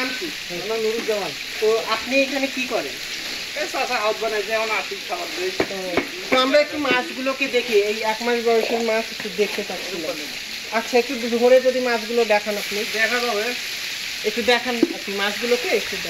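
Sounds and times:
people talking: 0.0 - 3.0, 3.6 - 13.6, 14.2 - 16.0
water splashing and sizzling: 0.0 - 16.0
water pouring from bucket: 12.3 - 16.0.

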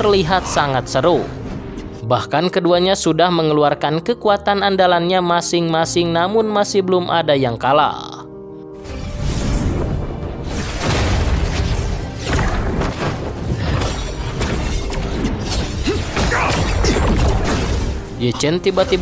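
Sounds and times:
background music: 0.0 - 19.0
energy blast booms and crashes: 8.9 - 18.2
explosion: 9.2 - 14.6.

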